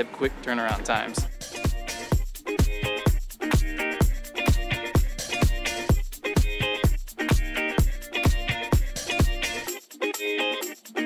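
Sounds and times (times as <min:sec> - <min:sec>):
dance music: 0:00.2 - 0:11.0
deep kick drum: 0:00.8 - 0:09.4.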